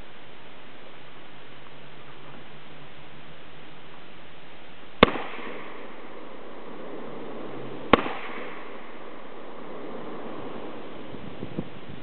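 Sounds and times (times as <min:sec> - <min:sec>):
rifle shots with echo: 0:05.0 - 0:11.1.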